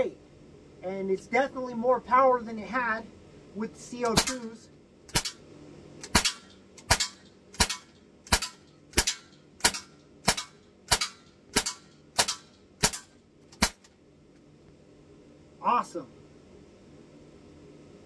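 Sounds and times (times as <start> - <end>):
air pistol shots: 4.0 - 4.5, 5.1 - 5.4, 6.0 - 13.9.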